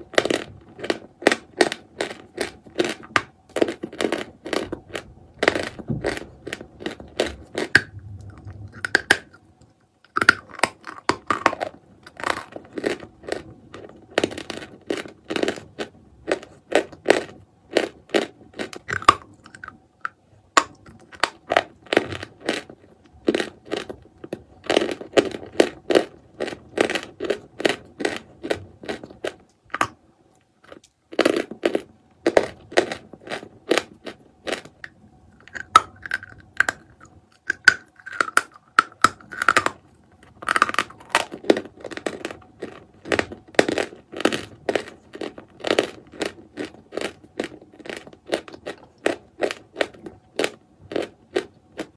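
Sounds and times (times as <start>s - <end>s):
chalk crunching in mouth: 0.0s - 9.4s, 30.6s - 51.9s.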